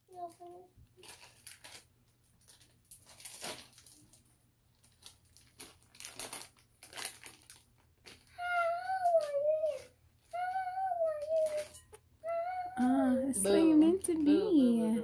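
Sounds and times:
plastic bag crinkling: 0.1 - 10.4, 11.2 - 11.8
child singing a long note: 8.5 - 11.7.

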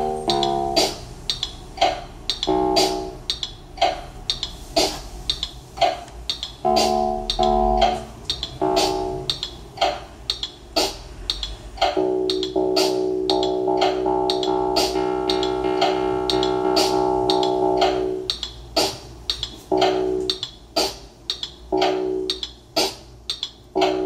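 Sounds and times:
pitched chord stabs: 0.0 - 5.3, 6.3 - 18.9, 19.7 - 21.0
looped electronic beat: 0.0 - 24.0.

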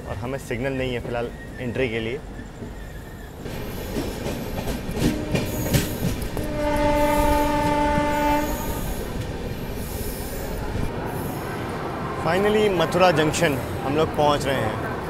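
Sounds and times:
train wheels rumbling: 0.4 - 15.0
train horn blast: 5.0 - 9.0.

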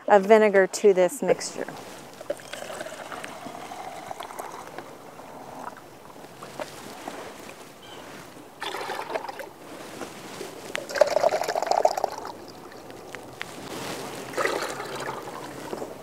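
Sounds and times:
vinegar pouring into water: 2.2 - 4.8, 8.6 - 9.5, 10.8 - 12.9, 14.3 - 15.5.

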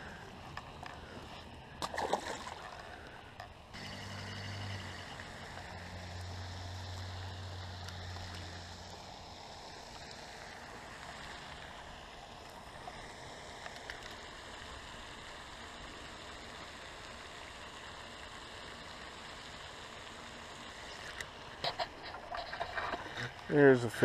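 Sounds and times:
fish splashing: 1.8 - 3.1.

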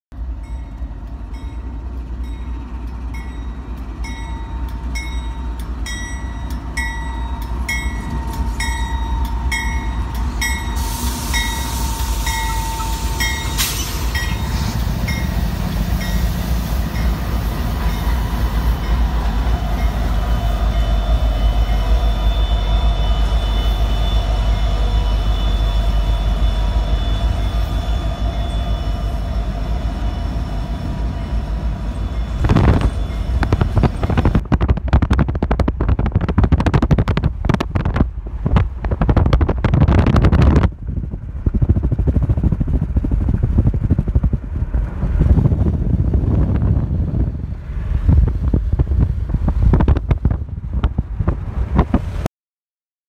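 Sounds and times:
diesel locomotives rumbling past: 0.1 - 52.3
locomotive bell dinging: 0.2 - 34.2.

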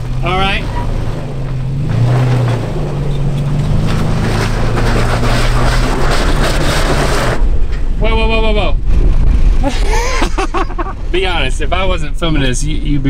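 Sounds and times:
wind noise on microphone: 3.3 - 13.0.

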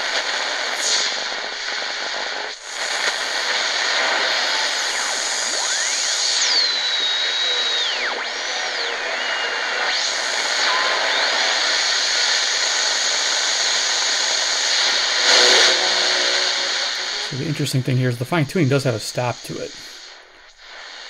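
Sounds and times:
radio static hiss: 0.0 - 21.0.

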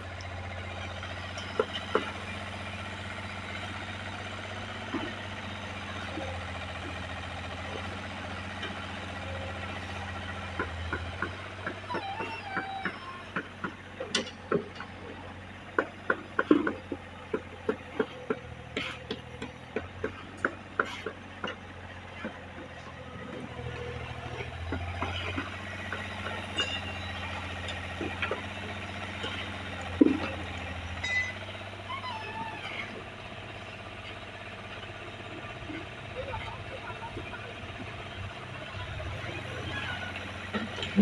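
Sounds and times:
low engine hum: 0.0 - 41.0
hand tools knocking and scraping concrete: 1.4 - 2.2, 10.5 - 23.5, 24.3 - 31.4.

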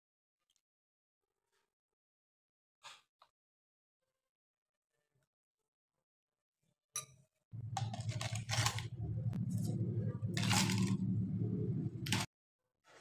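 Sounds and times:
low steady rumble: 7.6 - 12.3
ice cubes clattering into cup: 7.8 - 8.9, 10.4 - 11.0.

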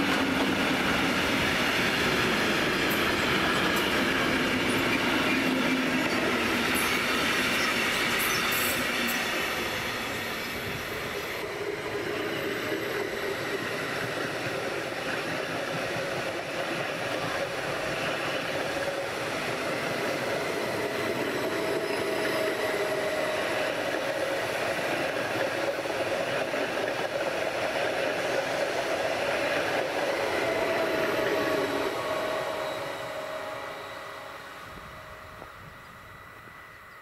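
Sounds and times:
electric train hum: 0.0 - 37.0
train wheels running on rails: 0.0 - 37.0.

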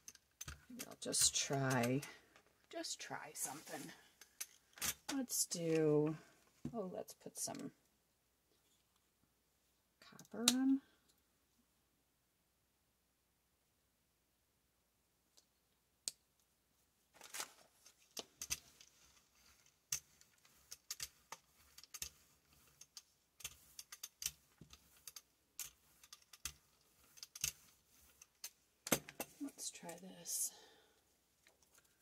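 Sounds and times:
brayer rolling through wet paint: 18.2 - 29.9.

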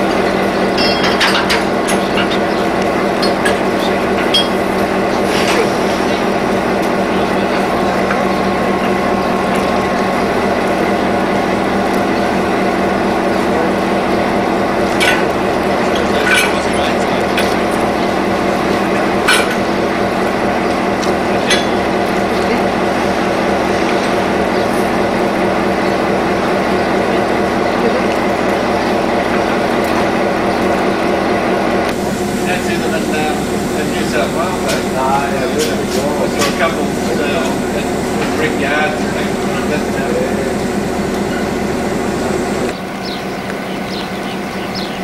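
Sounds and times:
diesel locomotive engine idling: 0.0 - 45.0
sharp metallic clanks: 0.7 - 2.6, 3.2 - 5.7, 15.0 - 17.6, 19.2 - 19.7, 21.4 - 21.9.

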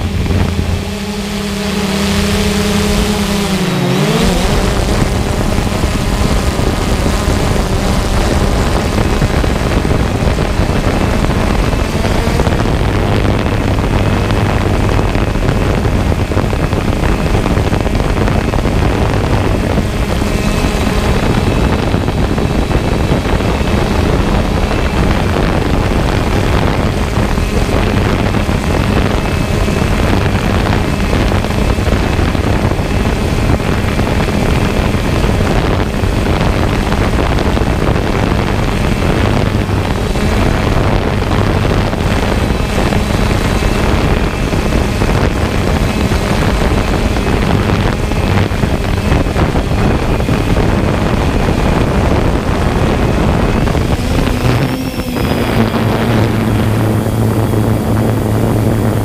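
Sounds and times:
drone propellers whirring: 0.0 - 59.0.

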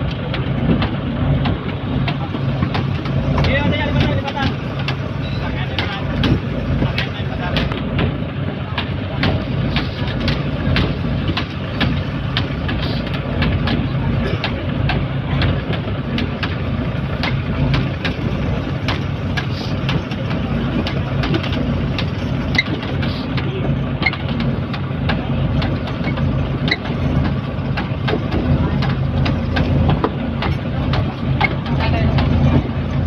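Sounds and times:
boat engine humming: 0.0 - 33.0.

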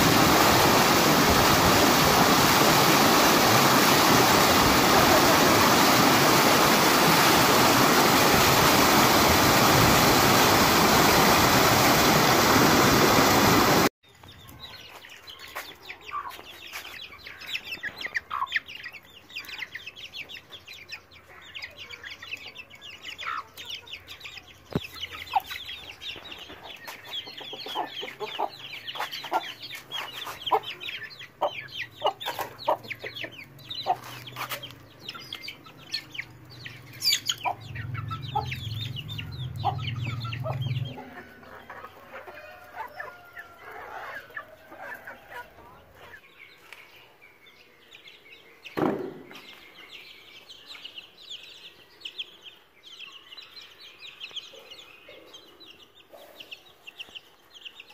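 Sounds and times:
waterfall rushing: 0.0 - 13.9
chickens clucking: 0.0 - 47.2, 52.1 - 57.9
chicks peeping: 10.4 - 57.9.

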